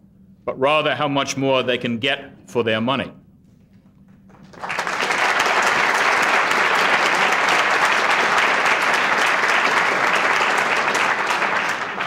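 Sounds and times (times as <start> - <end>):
audience applause: 4.3 - 12.0.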